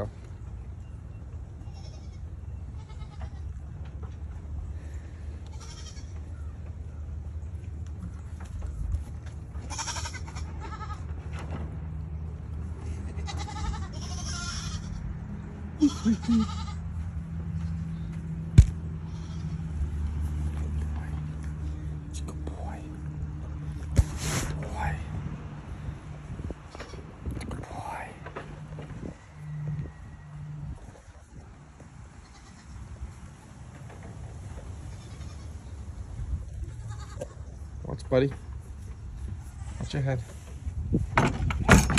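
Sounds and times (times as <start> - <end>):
goats bleating: 1.6 - 3.6, 5.4 - 6.4, 9.6 - 11.1, 12.8 - 15.1, 15.8 - 17.0, 19.0 - 19.7, 32.2 - 32.8, 34.9 - 35.6, 36.6 - 37.6
steady low rumble: 11.0 - 41.6.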